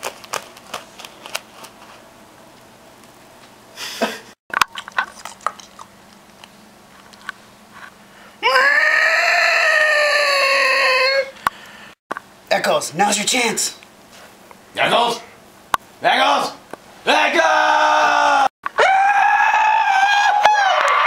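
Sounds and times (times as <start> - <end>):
person screaming: 8.4 - 11.4, 17.4 - 21.0.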